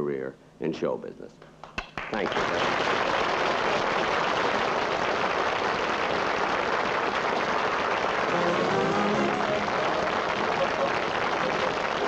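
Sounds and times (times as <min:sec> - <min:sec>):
audience applauding: 0:01.6 - 0:12.0
band music: 0:08.2 - 0:12.0.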